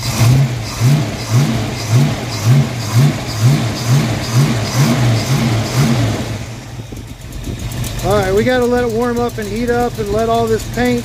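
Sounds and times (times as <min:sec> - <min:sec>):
car engine revving rhythmically: 0:00.0 - 0:11.0.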